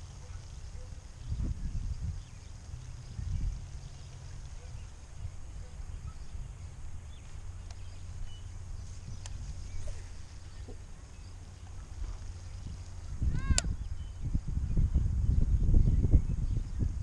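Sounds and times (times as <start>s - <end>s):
wind buffeting microphone: 0.0s - 17.0s
faint clicks: 7.2s - 7.9s, 9.2s - 9.4s.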